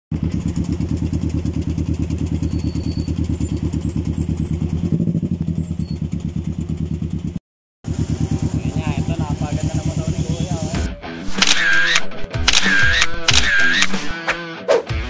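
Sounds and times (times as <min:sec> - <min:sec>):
motorcycle engine idling: 0:00.1 - 0:10.9.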